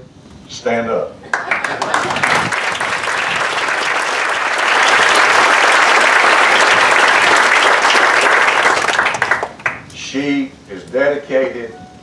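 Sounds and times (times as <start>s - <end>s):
audience applauding: 1.3s - 9.9s.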